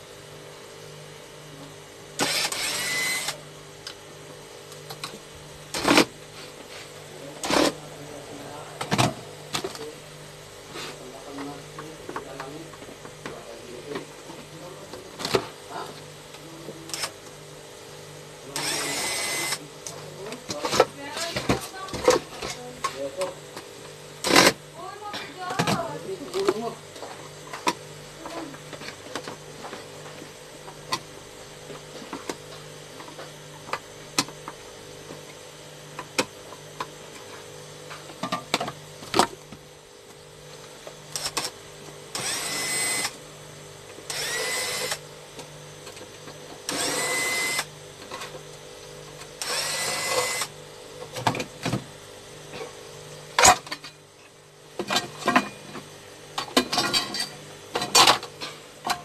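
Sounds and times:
electric screwdriver motor whining: 2.2s - 3.4s, 18.6s - 19.6s, 42.2s - 43.2s, 44.1s - 45.0s, 46.7s - 47.7s, 49.4s - 50.5s.

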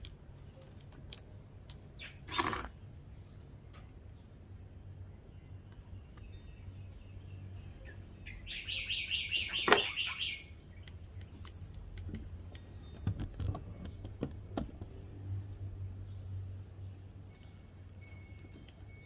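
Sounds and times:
bird chattering call: 8.3s - 10.5s.

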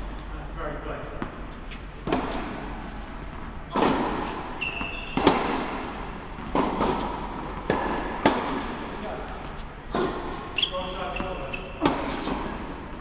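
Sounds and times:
tennis balls struck and bouncing: 2.0s - 10.5s, 11.2s - 13.0s
shoe squeak: 4.2s - 5.4s, 10.4s - 12.5s.

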